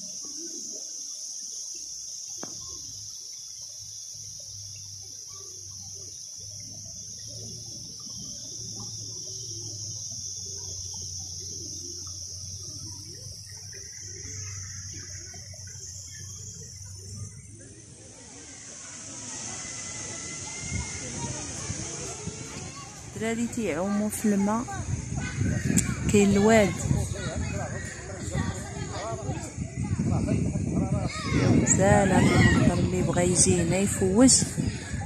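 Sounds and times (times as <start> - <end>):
stream trickling over pebbles: 0.0 - 28.9
insect chorus drone: 0.0 - 35.0.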